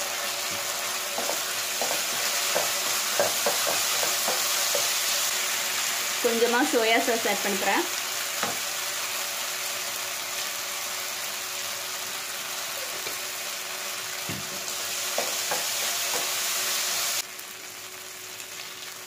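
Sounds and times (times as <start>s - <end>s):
vegetables sizzling in oil: 0.0s - 19.0s
spatula knocking against pan: 1.1s - 5.0s, 15.1s - 16.3s.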